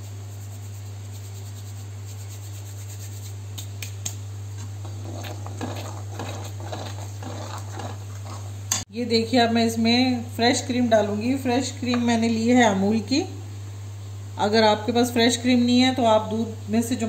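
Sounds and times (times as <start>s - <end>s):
metal ladle stirring gravy: 4.6s - 8.8s.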